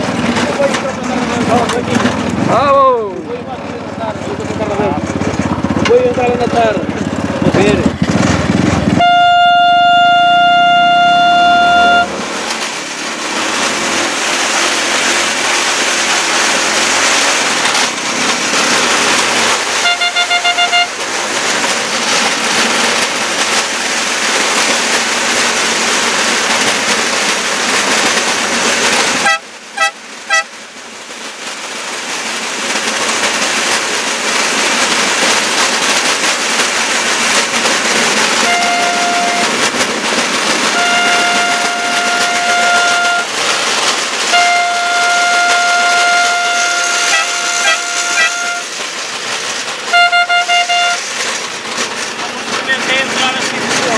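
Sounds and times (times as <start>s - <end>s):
steady rushing of moving vehicle: 0.0s - 53.9s
vehicle horn blasts and toots: 9.0s - 12.2s, 19.8s - 21.0s, 29.2s - 30.5s, 38.4s - 39.6s, 40.8s - 43.3s, 44.3s - 48.8s, 49.9s - 51.1s.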